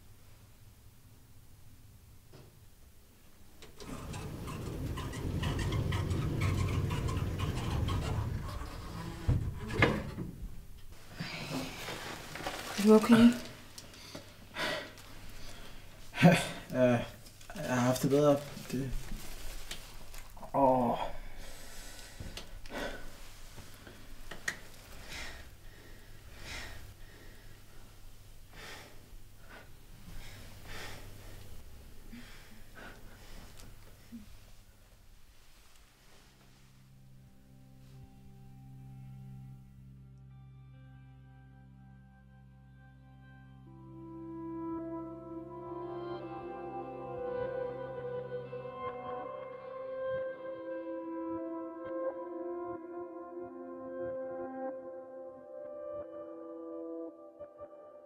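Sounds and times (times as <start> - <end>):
faint low hum: 0.0 - 45.7
faint rustling: 3.2 - 38.5.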